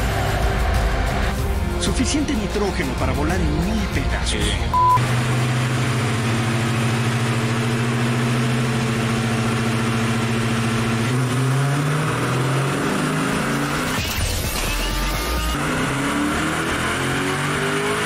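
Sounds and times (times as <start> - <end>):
car engine running on dynamometer: 4.8 - 18.0.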